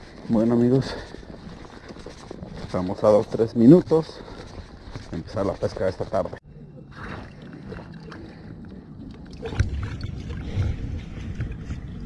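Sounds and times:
wind buffeting microphone: 7.0s - 12.0s.

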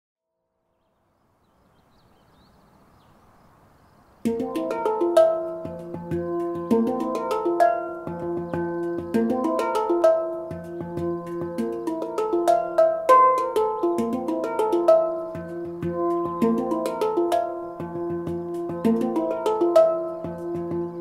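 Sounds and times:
faint background hiss: 0.7s - 21.0s
handpan played by hand: 4.3s - 21.0s.

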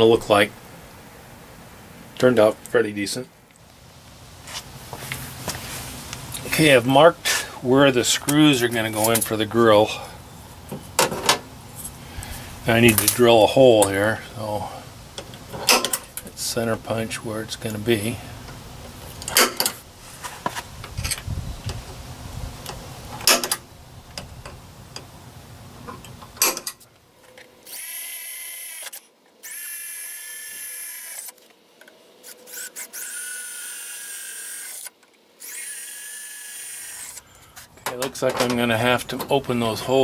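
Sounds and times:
cordless drill drilling into metal: 27.7s - 31.3s, 32.2s - 37.2s.

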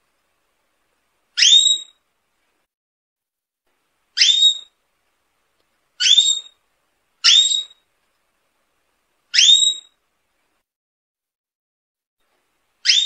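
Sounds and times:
canary whistled calls: 1.4s - 2.0s, 4.2s - 4.8s, 6.0s - 6.6s, 7.2s - 7.8s, 9.3s - 10.0s.

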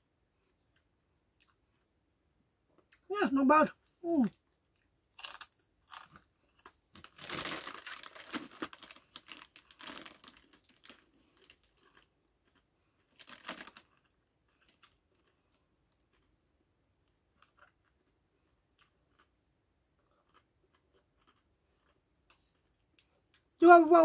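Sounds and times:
crisps crunching as chewed: 4.7s - 16.4s, 17.0s - 23.5s
crisp packet crinkling: 5.2s - 15.4s.

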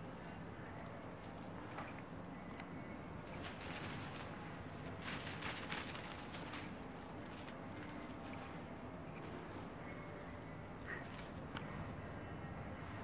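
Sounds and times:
low room hum: 0.0s - 13.0s
kittens rustling and pawing: 3.2s - 10.2s, 10.9s - 11.8s.

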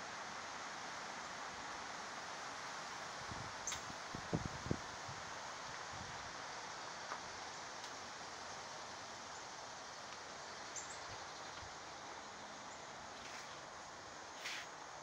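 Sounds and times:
wind through trees: 0.0s - 15.0s.

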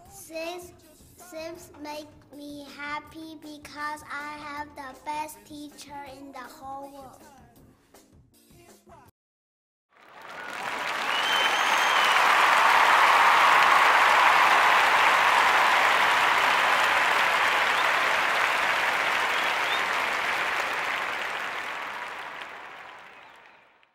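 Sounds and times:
crowd applauding: 10.0s - 23.9s.

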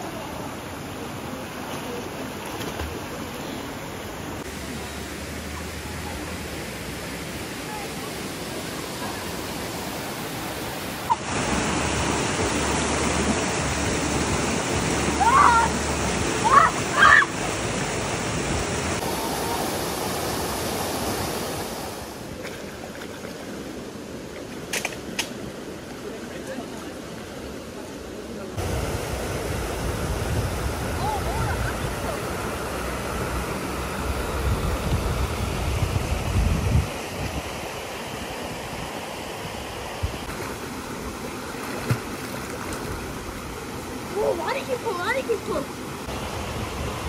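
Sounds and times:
water rushing over rocks: 0.0s - 47.0s.

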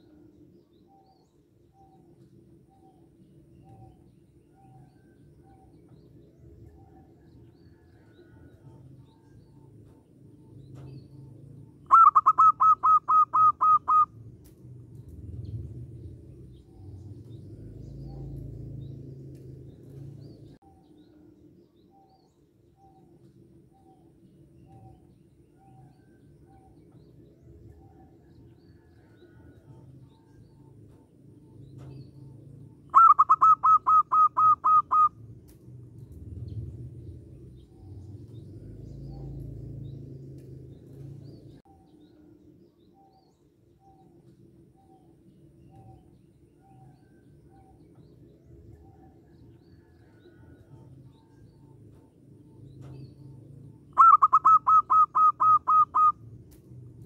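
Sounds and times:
faint bird calls: 0.0s - 14.2s, 27.7s - 35.2s, 48.7s - 56.3s
dove cooing: 11.9s - 14.1s, 32.9s - 35.2s, 53.9s - 56.2s.

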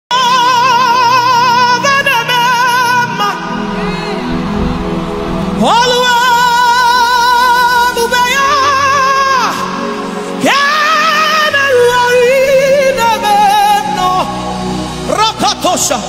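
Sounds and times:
instrumental backing: 3.0s - 8.2s.

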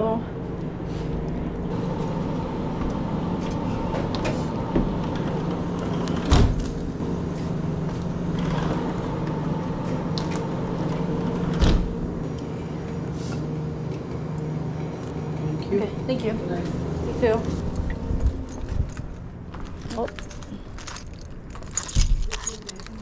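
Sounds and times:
cooler hum: 0.0s - 23.0s.

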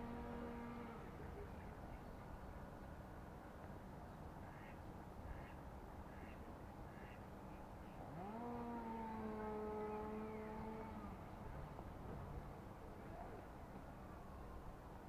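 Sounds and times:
electric motor whine: 8.1s - 11.2s.

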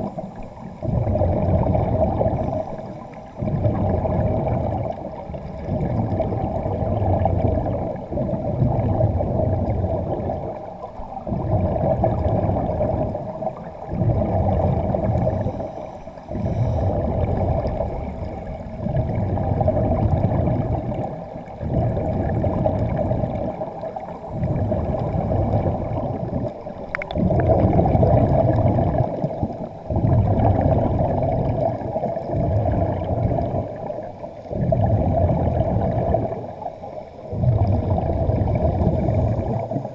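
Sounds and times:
underwater air bubbling: 0.0s - 39.9s.

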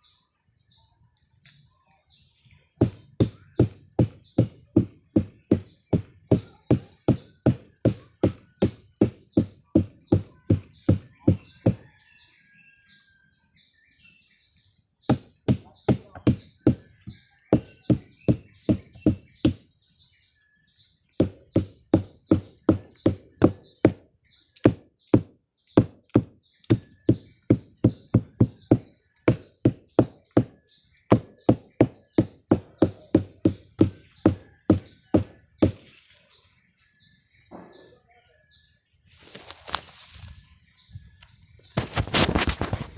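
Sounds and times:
birds chirping: 0.0s - 42.9s
high insect whine: 0.0s - 42.9s.

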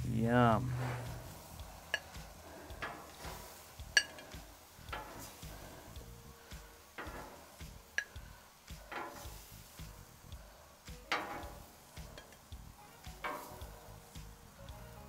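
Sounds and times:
faint sizzling food: 0.0s - 15.0s
tongs scraping a griddle: 0.7s - 14.6s
tongs clicking: 1.0s - 12.5s, 13.1s - 14.4s.

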